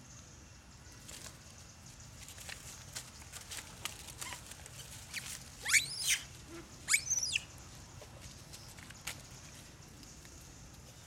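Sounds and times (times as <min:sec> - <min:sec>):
rustling of dry leaves: 0:00.8 - 0:11.0
monkey squealing: 0:05.6 - 0:06.3, 0:06.9 - 0:07.4.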